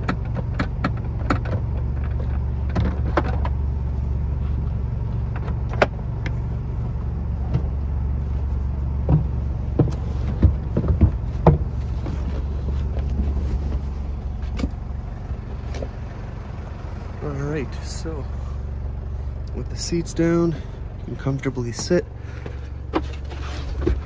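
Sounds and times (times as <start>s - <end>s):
seat cushions and frame clunking: 0.0s - 16.2s, 20.5s - 24.0s
steady low hum: 0.0s - 24.0s
sharp thumps: 9.0s - 14.8s.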